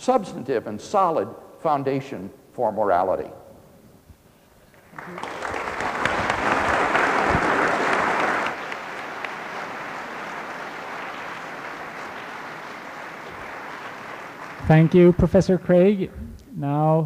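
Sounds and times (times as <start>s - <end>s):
audience applauding: 4.8s - 15.4s.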